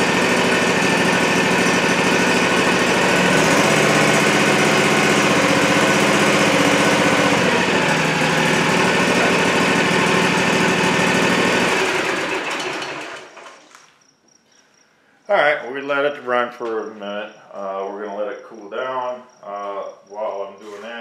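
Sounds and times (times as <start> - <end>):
engine running down to a stop: 0.0 - 13.7
mower engine running: 0.0 - 13.7.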